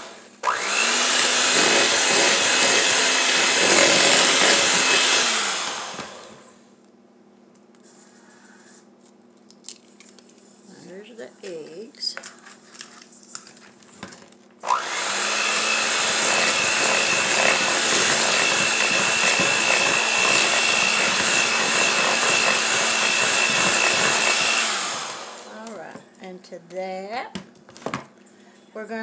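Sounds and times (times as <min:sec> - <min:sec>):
electric hand mixer whining: 0:00.0 - 0:06.6, 0:14.6 - 0:25.7.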